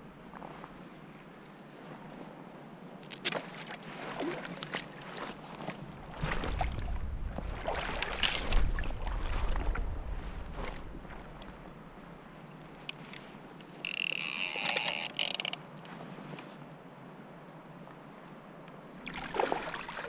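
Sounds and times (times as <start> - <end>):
water splashing and sloshing: 3.0 - 12.1, 19.0 - 20.0.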